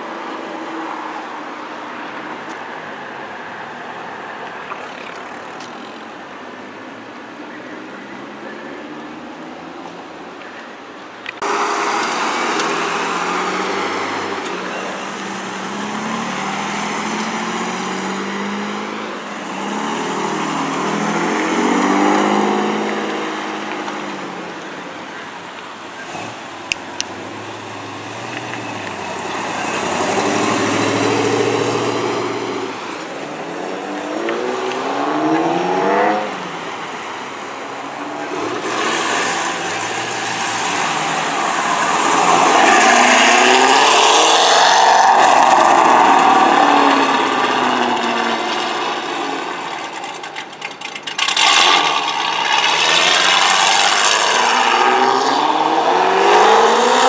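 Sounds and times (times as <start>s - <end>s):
cars accelerating: 11.2s - 57.0s
car engine revving through gears: 26.0s - 36.7s, 38.1s - 57.0s.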